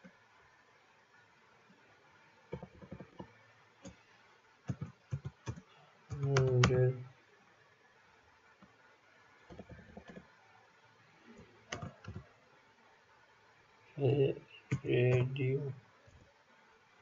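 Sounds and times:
keyboard keys clicking: 4.7 - 6.8, 11.7 - 12.2.

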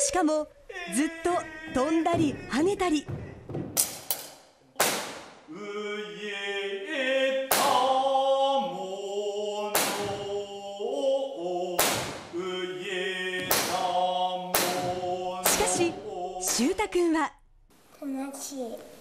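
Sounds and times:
man chanting unaccompanied: 0.7 - 2.5, 12.4 - 16.6
loud sharp knocks: 1.7 - 5.5, 9.8 - 10.3, 11.8 - 12.4, 13.4 - 13.9, 14.5 - 15.9.

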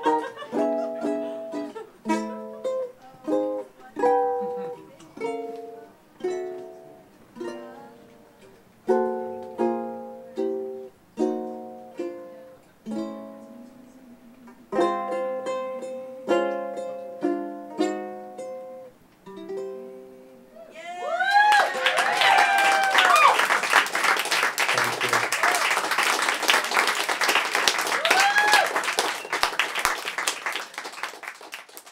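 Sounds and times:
ukulele strumming chords: 0.0 - 20.5
audience applause and cheering: 20.7 - 31.9.

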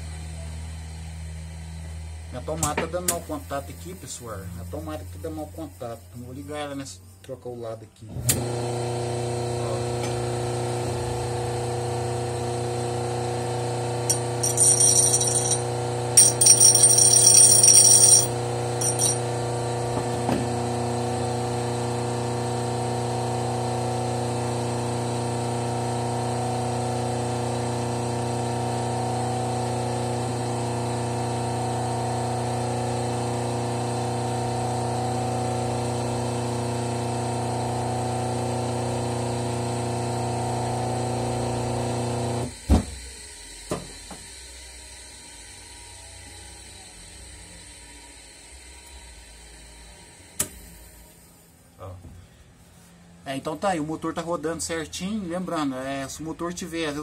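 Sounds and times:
electric motor humming: 8.4 - 42.4.

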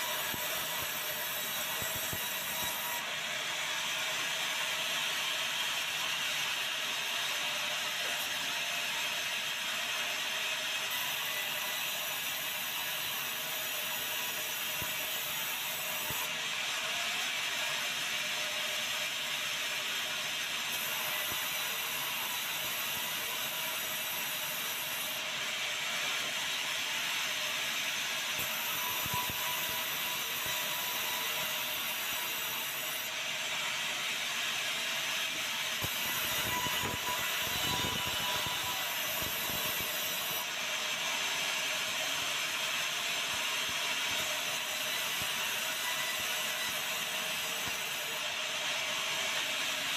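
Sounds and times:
band saw cutting timber: 0.0 - 6.6, 20.7 - 41.1, 43.5 - 49.9.

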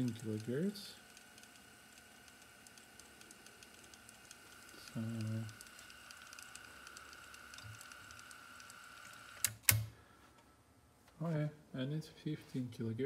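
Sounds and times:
faint rapid ticking: 0.0 - 9.4
tape winding whine: 0.0 - 9.6
tape transport clicks: 0.0 - 9.9.

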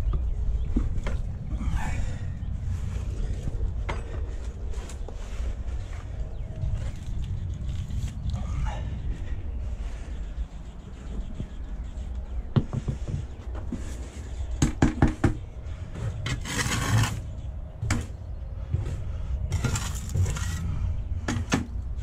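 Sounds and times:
trowel scraping through mortar: 16.3 - 17.3, 19.5 - 20.7.

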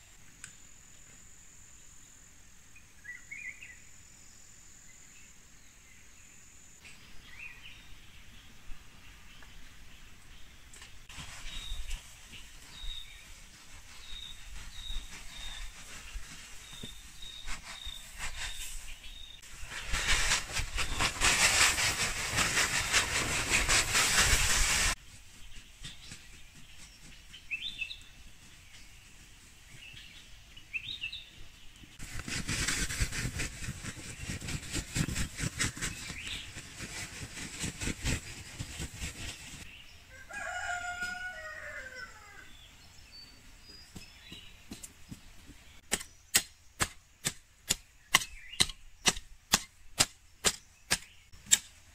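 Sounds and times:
loose material poured from sack: 13.8 - 25.0
rooster crowing: 40.1 - 42.5
hoe striking soil: 45.8 - 51.9.

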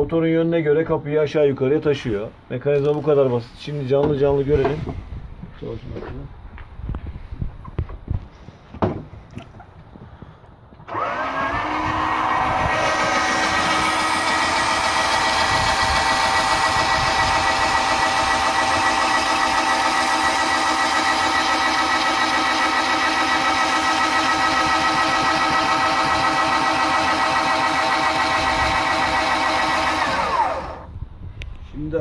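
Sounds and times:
gear motor whining: 10.9 - 30.9.

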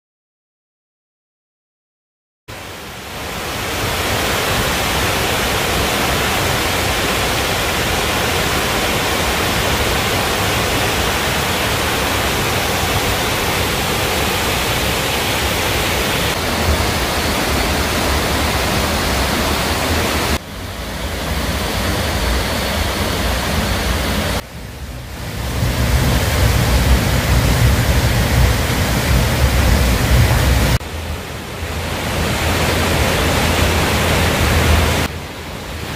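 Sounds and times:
stream water rushing: 2.5 - 35.9
deep rumble: 16.3 - 35.1.

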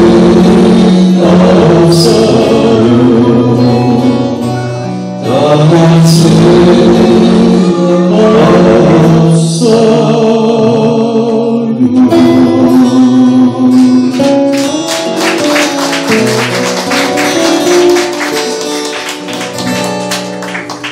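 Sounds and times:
men singing together: 0.0 - 4.4, 5.2 - 14.2
acoustic guitar strumming: 0.0 - 9.3, 11.8 - 20.9.

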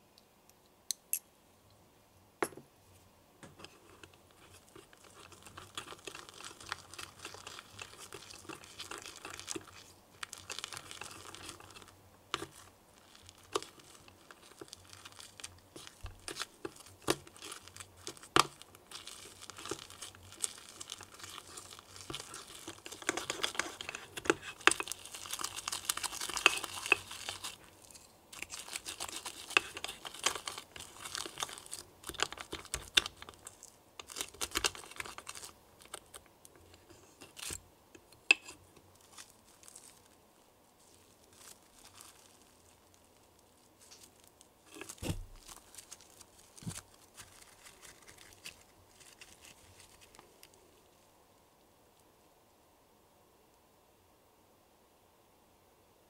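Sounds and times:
slime squelching: 4.4 - 37.6.

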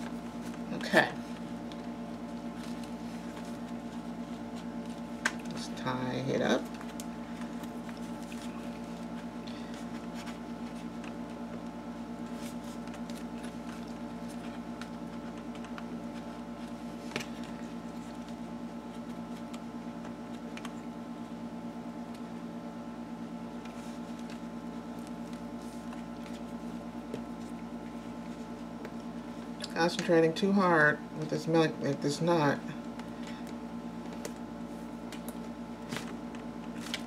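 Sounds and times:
low electrical hum: 0.0 - 37.0
paper rustling: 6.6 - 19.6, 34.0 - 37.0.

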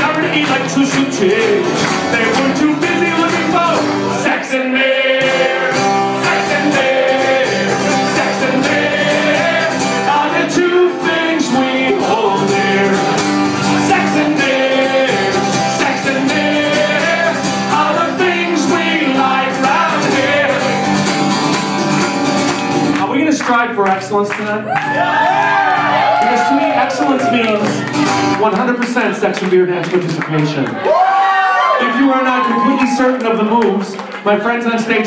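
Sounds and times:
person singing: 0.0 - 21.0
strummed acoustic guitar: 0.0 - 24.3, 27.0 - 29.0.

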